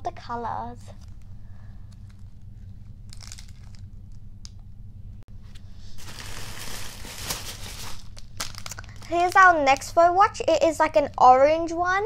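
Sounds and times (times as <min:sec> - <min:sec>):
tissue paper crinkling: 0:03.1 - 0:03.9, 0:05.8 - 0:09.4.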